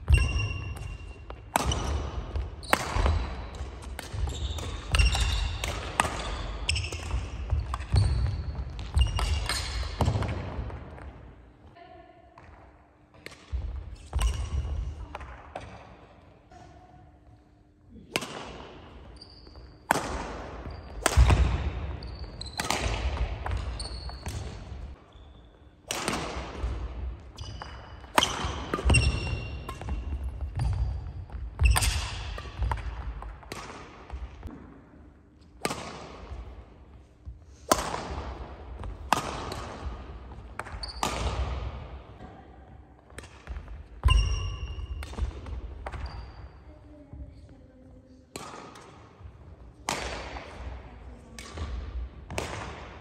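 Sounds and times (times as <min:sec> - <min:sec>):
racket hitting shuttlecock: 0:00.0 - 0:11.1, 0:18.0 - 0:19.1, 0:19.8 - 0:24.9, 0:25.8 - 0:34.8, 0:35.5 - 0:36.5, 0:37.6 - 0:42.3, 0:43.1 - 0:46.1, 0:48.3 - 0:50.8, 0:51.4 - 0:53.0
sneakers squeaking: 0:00.0 - 0:11.1, 0:13.2 - 0:15.8, 0:18.8 - 0:25.8, 0:27.0 - 0:34.5, 0:38.8 - 0:48.5.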